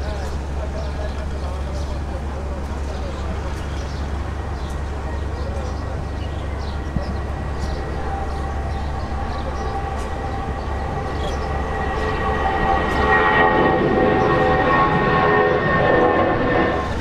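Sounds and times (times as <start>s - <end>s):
distant jet engines roaring: 0.0s - 17.0s
high whining tones: 4.2s - 17.0s.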